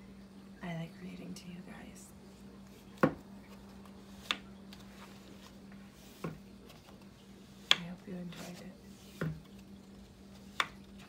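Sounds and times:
faint steady hum: 0.0s - 11.0s
taps on a book cover: 3.0s - 3.2s.

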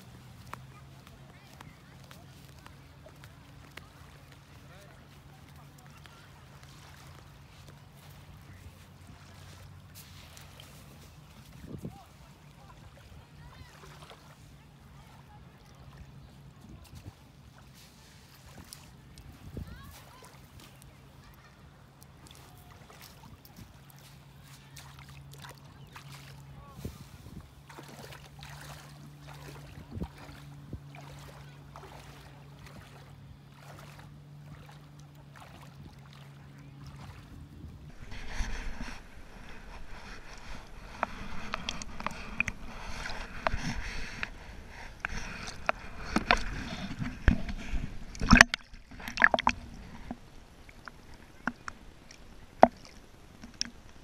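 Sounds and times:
wading splashes in water: 0.0s - 54.0s
low hum: 37.0s - 54.0s.

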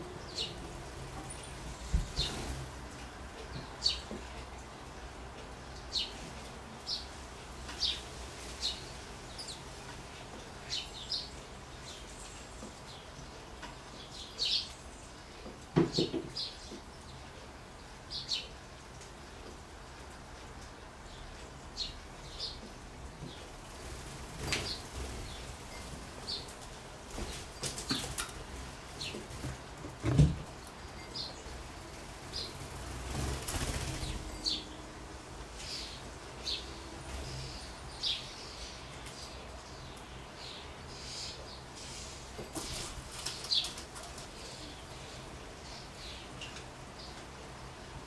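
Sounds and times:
blackbirds chirping: 0.0s - 2.6s, 3.4s - 48.0s
bird wingbeats: 32.4s - 34.3s.

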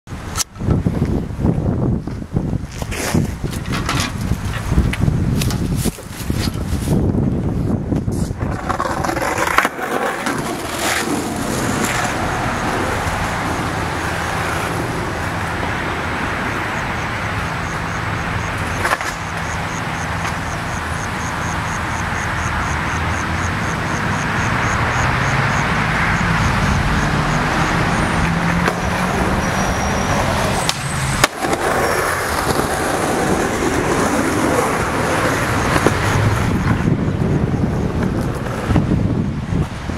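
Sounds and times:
skateboard wheels rolling on pavement: 0.1s - 39.9s.

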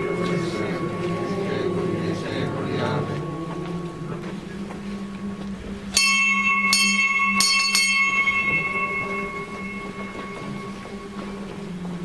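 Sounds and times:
bell ringing: 0.0s - 3.2s, 5.9s - 11.8s.

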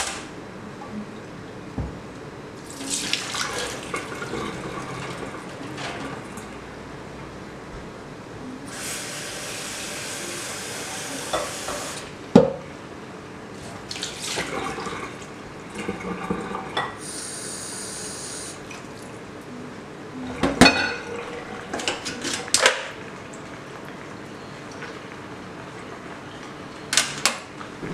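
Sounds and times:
water pouring into a sink: 2.7s - 5.4s, 13.9s - 16.8s.

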